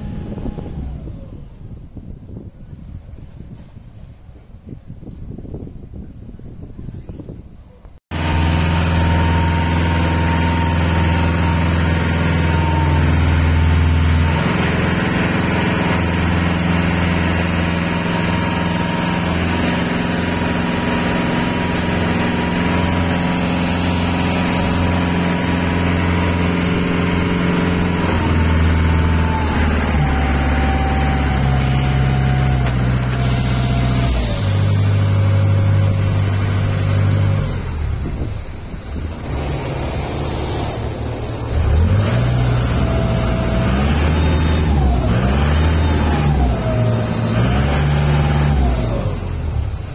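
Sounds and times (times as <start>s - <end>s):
boat engine running: 8.1s - 49.9s.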